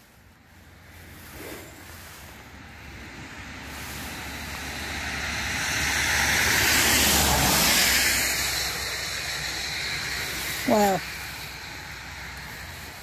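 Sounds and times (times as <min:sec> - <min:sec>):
car passing on road: 0:00.0 - 0:13.0.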